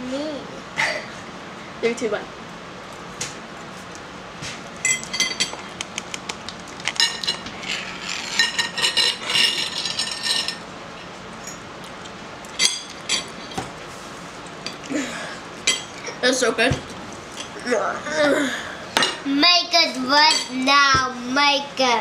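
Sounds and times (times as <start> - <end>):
forks clinking on plates: 4.8 - 5.6, 7.0 - 10.6, 12.6 - 13.6, 15.6 - 16.0, 20.3 - 20.6.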